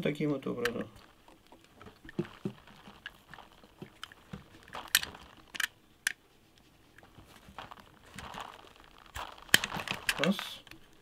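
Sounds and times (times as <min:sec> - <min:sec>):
plastic cracking: 0:00.6 - 0:06.2, 0:07.0 - 0:11.0
knife cutting plastic: 0:07.4 - 0:10.8.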